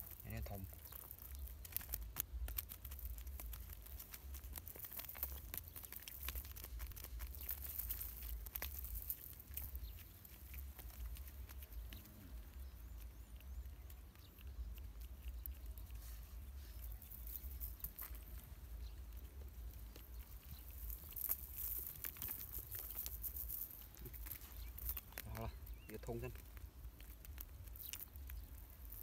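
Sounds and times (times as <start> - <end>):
cast net chain rustling: 16.5 - 18.6, 19.7 - 25.5.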